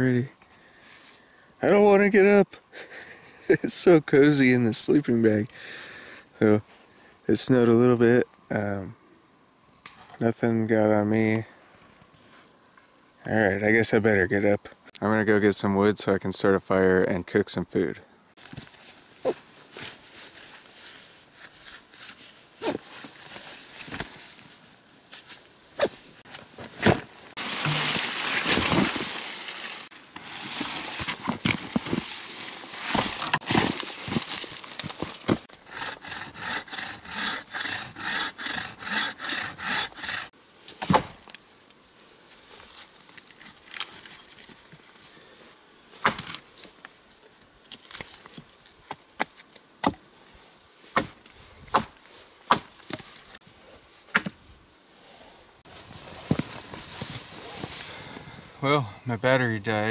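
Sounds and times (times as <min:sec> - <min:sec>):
twigs snapping: 0:26.8 - 0:35.5, 0:47.6 - 0:50.0
hand saw cutting branch: 0:32.7 - 0:40.3.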